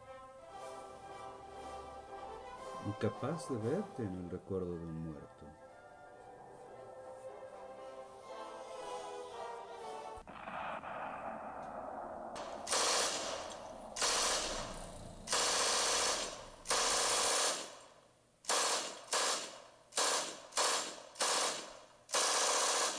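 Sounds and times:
harsh bursts of hissing: 14.0 - 17.7.

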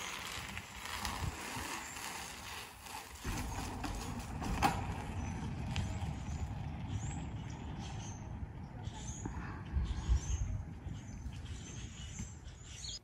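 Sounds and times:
low uneven rumble: 0.0 - 12.7.

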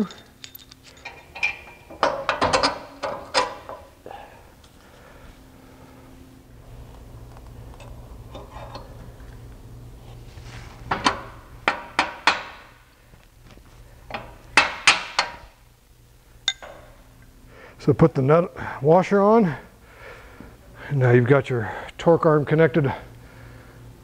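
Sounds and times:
metal-on-metal taps: 16.5 - 16.9.

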